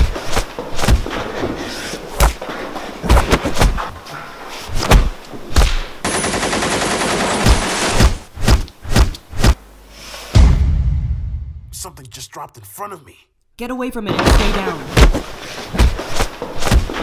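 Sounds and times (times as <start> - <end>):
automatic gunfire: 6.0 - 7.9.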